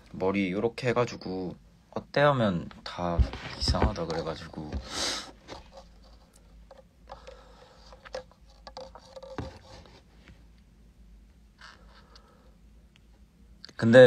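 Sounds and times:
faint clicks and scrapes: 5.4 - 10.6.

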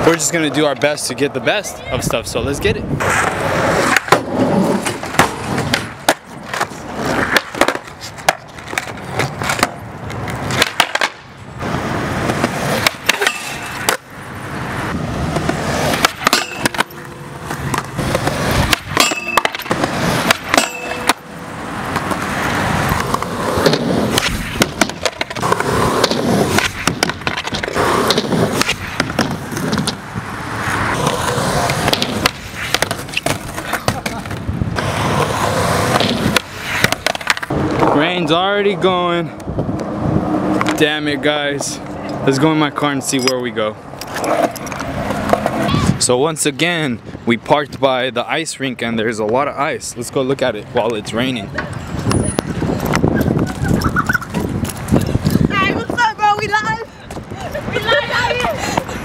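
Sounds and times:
skateboard wheels rolling on concrete: 0.0 - 59.0
skateboards clacking on concrete: 3.0 - 38.3, 43.2 - 46.0, 50.8 - 59.0.

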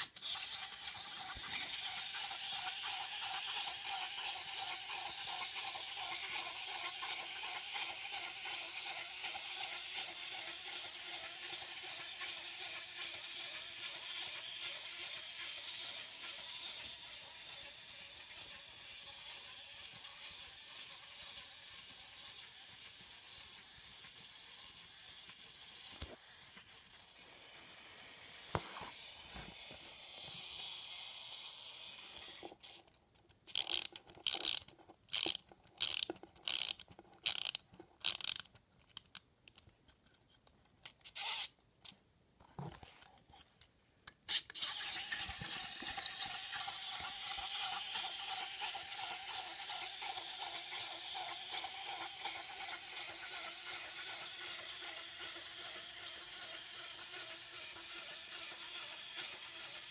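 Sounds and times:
clockwork toy whirring: 0.0 - 39.2, 40.9 - 42.0, 44.3 - 59.9
key winding ratchet clicks: 33.5 - 39.6.

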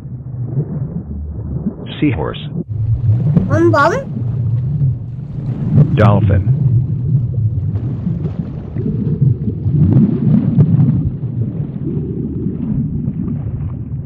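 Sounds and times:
low underwater rumble: 6.7 - 14.0.

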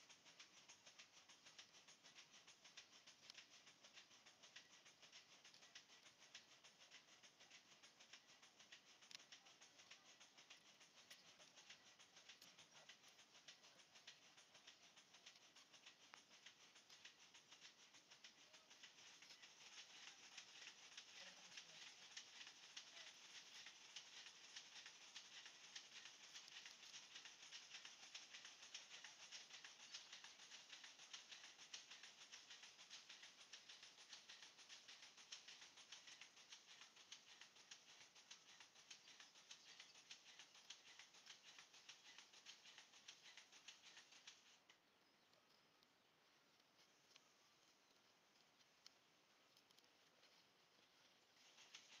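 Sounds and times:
faint crackling hiss: 0.0 - 52.0.

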